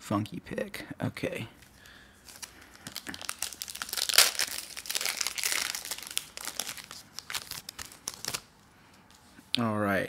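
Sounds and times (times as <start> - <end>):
foil wrapper crinkling: 1.6 - 8.5.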